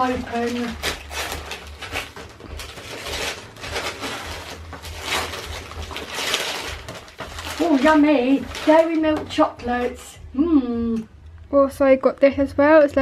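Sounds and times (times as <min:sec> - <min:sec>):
wrapping paper tearing and crumpling: 0:00.0 - 0:10.2.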